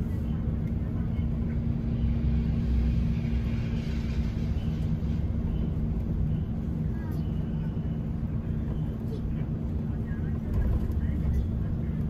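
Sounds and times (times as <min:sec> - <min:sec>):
bus engine and road rumble: 0:00.0 - 0:12.0
constant hum: 0:00.0 - 0:12.0.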